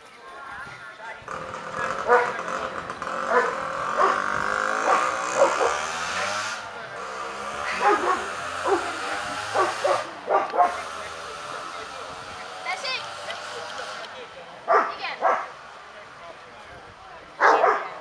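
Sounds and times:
dog barking: 0:02.0 - 0:02.4, 0:03.3 - 0:05.9, 0:07.8 - 0:10.8, 0:14.7 - 0:15.5, 0:17.4 - 0:18.0.

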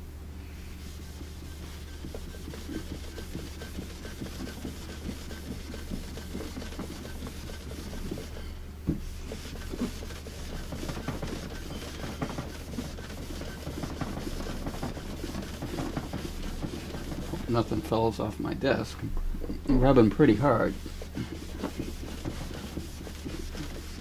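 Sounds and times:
steady low hum: 0:00.0 - 0:24.0
cloth scrubbing on wood: 0:00.8 - 0:18.2, 0:19.8 - 0:24.0
knuckle rapping on wood: 0:01.7 - 0:08.3, 0:08.9 - 0:17.5, 0:20.8 - 0:24.0.

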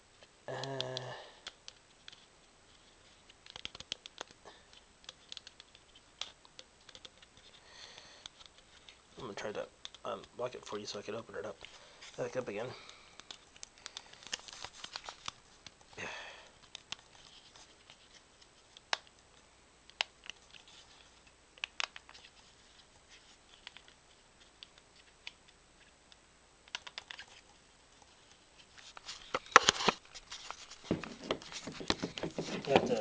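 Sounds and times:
rustling handling: 0:28.2 - 0:33.0.

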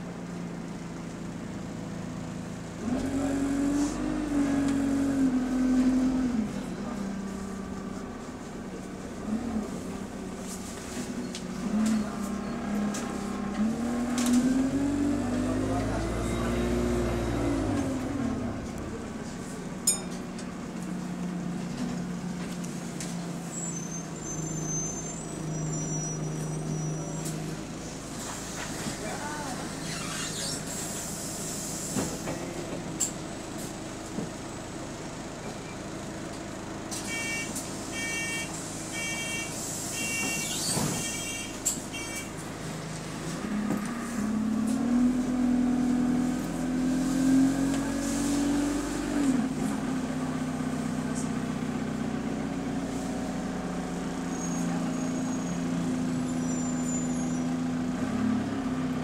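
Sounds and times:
bus diesel engine: 0:00.0 - 0:59.0
short sharp ringing: 0:19.9 - 0:20.3.

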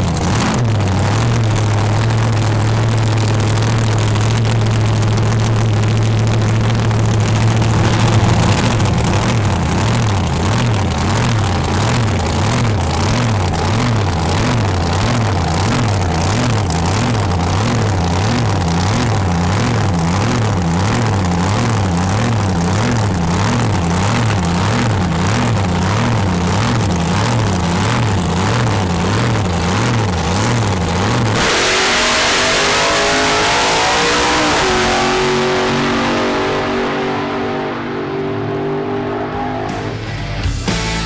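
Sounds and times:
race car engine idling: 0:00.0 - 0:41.0
race car launching full throttle: 0:00.0 - 0:41.0
music: 0:39.4 - 0:41.0.

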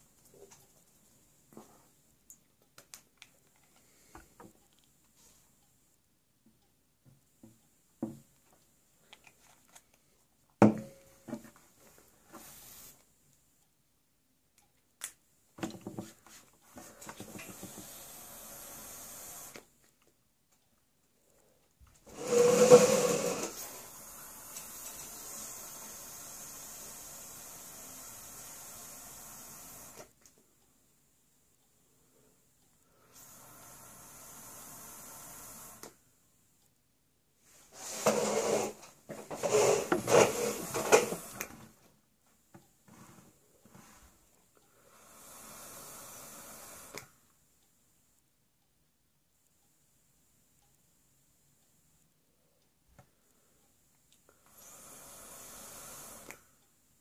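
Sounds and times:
vape airflow hiss: 0:16.8 - 0:19.7, 0:22.0 - 0:30.1, 0:33.0 - 0:36.0, 0:37.7 - 0:41.5, 0:44.8 - 0:47.2, 0:54.3 - 0:56.6
vaper drawing rushing air: 0:22.1 - 0:23.8.

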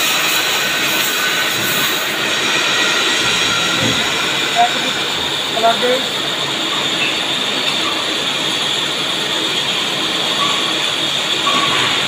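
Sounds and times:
high-pitched whine: 0:00.0 - 0:08.4
machine shop machinery din: 0:00.0 - 0:12.0.

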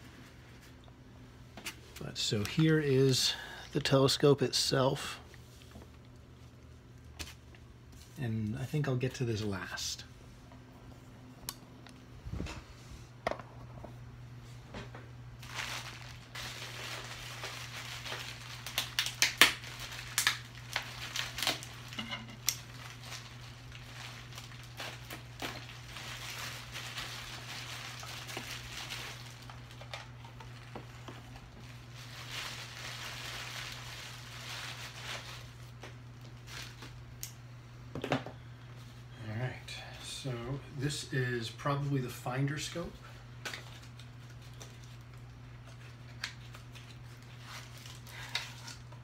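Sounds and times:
steady low hum: 0:00.0 - 0:49.0
plastic packaging crinkling: 0:15.4 - 0:37.0, 0:43.4 - 0:49.0.

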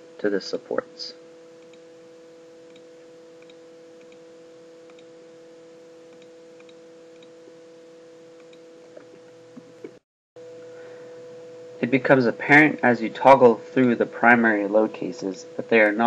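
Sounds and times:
steady electrical hum: 0:00.0 - 0:16.0
computer mouse clicks: 0:02.7 - 0:04.2, 0:04.9 - 0:05.1, 0:06.1 - 0:07.3, 0:08.4 - 0:08.6.

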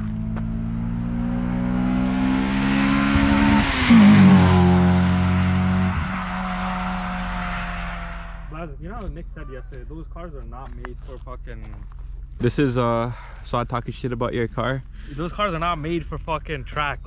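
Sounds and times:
car accelerating past: 0:00.0 - 0:08.5.

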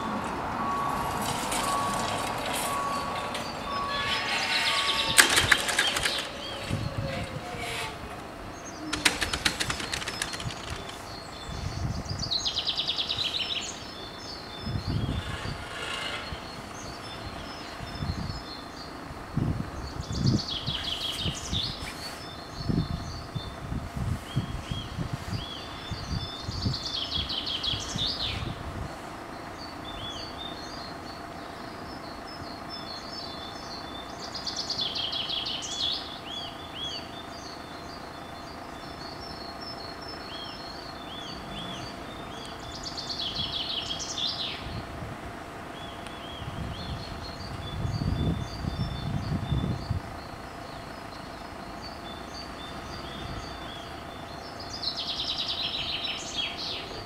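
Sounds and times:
low rumbles: 0:00.0 - 0:30.0
songbirds singing: 0:00.0 - 0:57.0.

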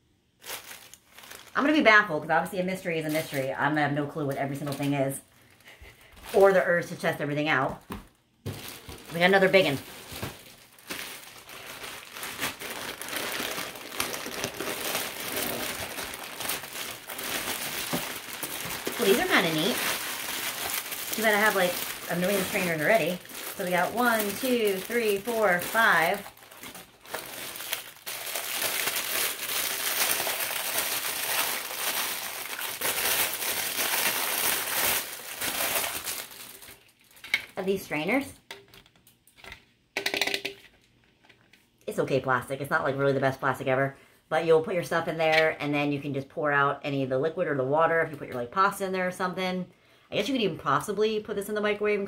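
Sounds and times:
plastic bag crinkling: 0:00.4 - 0:02.1, 0:02.8 - 0:38.1.

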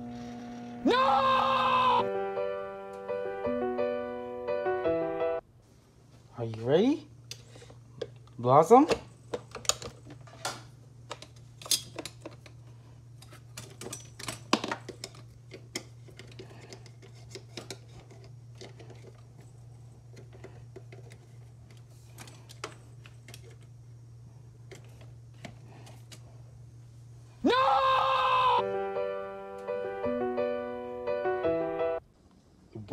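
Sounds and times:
microwave oven humming: 0:00.0 - 0:03.0.

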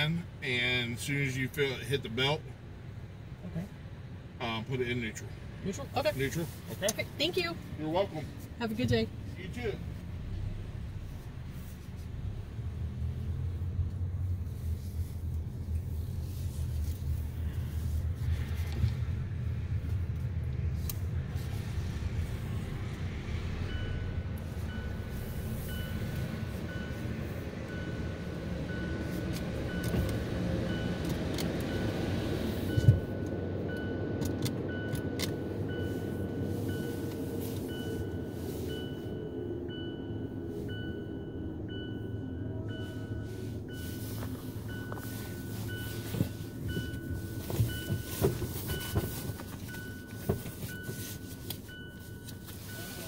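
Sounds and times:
low rumble inside car wash: 0:00.0 - 0:53.0
electronic warning chime beeping: 0:23.6 - 0:31.0, 0:32.6 - 0:53.0.

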